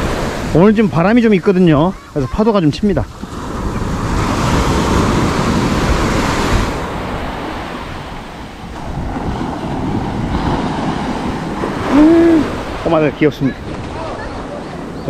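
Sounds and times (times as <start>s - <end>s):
surf washing up a sandy beach: 0.0s - 15.0s
wind buffeting microphone: 1.9s - 15.0s.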